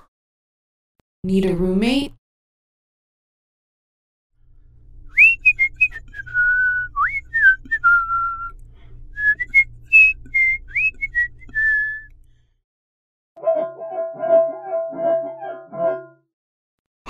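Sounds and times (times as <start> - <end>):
person whistling a tune: 5.1 - 8.6, 9.2 - 12.1.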